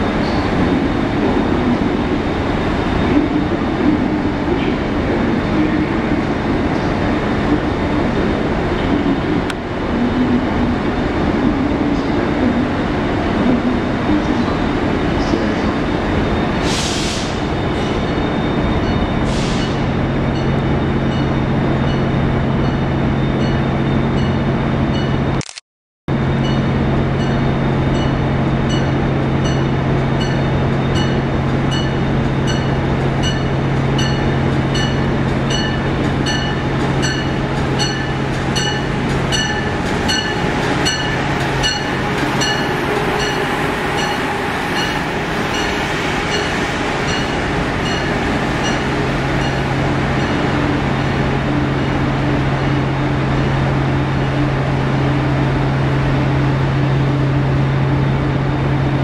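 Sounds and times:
train low hum: 0:00.0 - 0:25.4, 0:26.1 - 0:59.0
train bell ringing: 0:17.8 - 0:25.3, 0:26.2 - 0:50.6.

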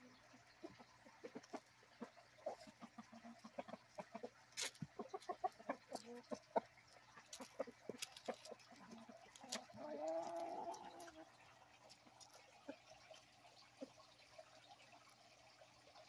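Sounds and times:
rooster clucking: 0:00.6 - 0:11.4.

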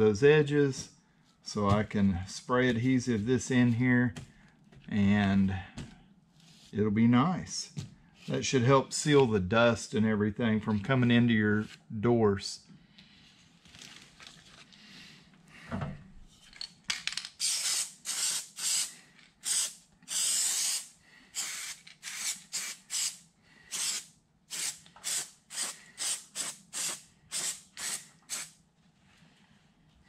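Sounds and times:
aerosol can hissing in bursts: 0:17.4 - 0:28.5.

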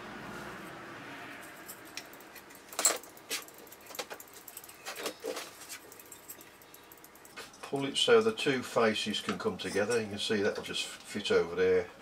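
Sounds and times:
small metal parts clicking: 0:01.4 - 0:07.9.

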